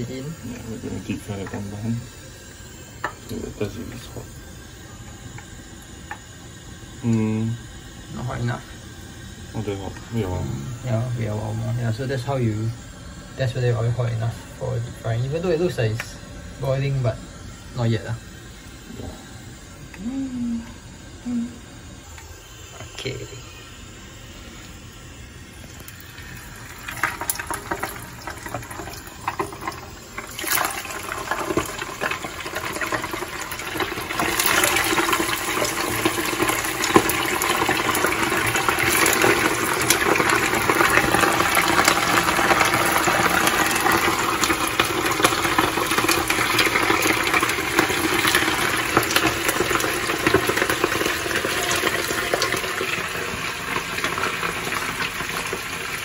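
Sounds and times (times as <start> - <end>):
fish sizzling in hot oil: 0.0 - 56.0.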